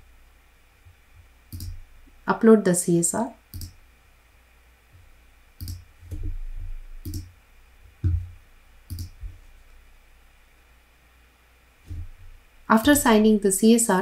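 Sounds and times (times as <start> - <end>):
computer mouse clicking: 1.5 - 1.8, 3.5 - 3.8, 5.6 - 5.8, 7.0 - 7.3, 8.9 - 9.2.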